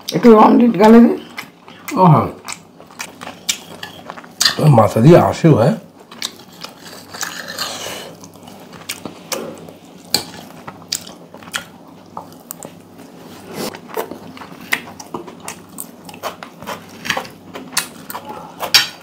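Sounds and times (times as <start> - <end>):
person chewing: 1.3 - 4.7, 5.9 - 19.0
knife and fork scraping on plate: 3.6 - 4.1, 6.4 - 8.1.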